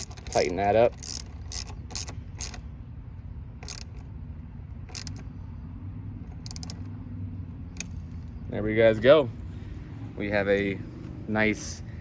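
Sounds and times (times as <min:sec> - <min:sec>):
ratchet wrench clicking: 0:00.0 - 0:02.7, 0:03.6 - 0:05.4, 0:06.2 - 0:07.0, 0:07.6 - 0:08.4.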